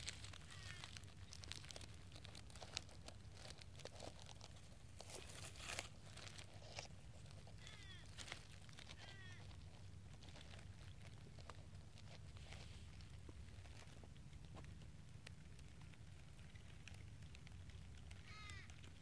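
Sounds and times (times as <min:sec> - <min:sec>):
light clicks and rustles: 0:00.0 - 0:19.0
low steady hum: 0:00.0 - 0:19.0
short animal calls falling in pitch: 0:18.2 - 0:18.7.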